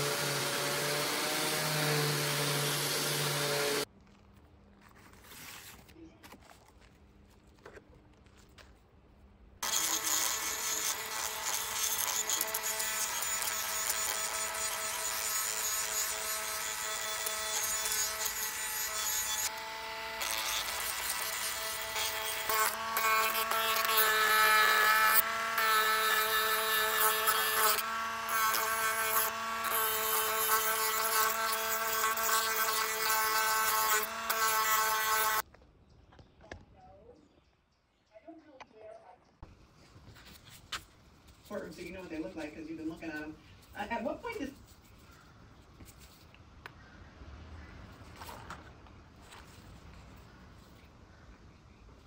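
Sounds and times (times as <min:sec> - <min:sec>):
rotary tool motor whine: 0:09.6 - 0:35.4.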